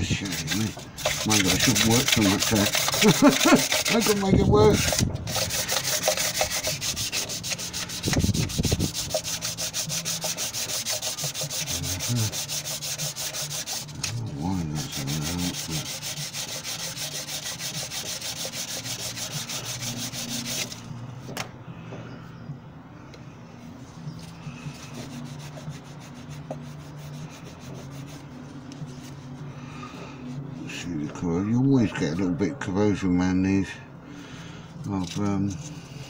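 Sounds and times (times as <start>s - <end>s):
sandpaper rubbing on metal: 0.0s - 20.8s, 24.6s - 29.5s.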